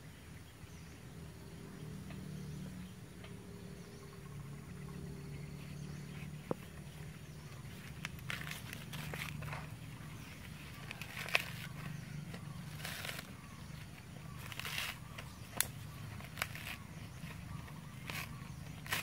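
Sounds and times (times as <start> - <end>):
steady low hum: 0.0 - 19.0
dry twigs rustling and snapping: 7.0 - 19.0
branches cracking: 7.4 - 19.0.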